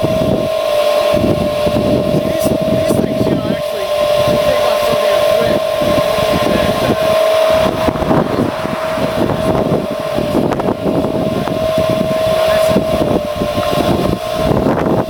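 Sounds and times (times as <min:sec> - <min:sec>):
electric blower whining: 0:00.0 - 0:15.0
irregular low rumble: 0:03.8 - 0:15.0.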